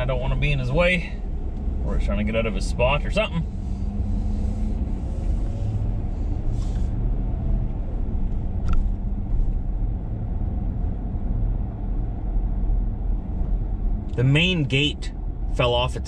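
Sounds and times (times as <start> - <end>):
truck engine and road rumble: 0.0 - 16.0.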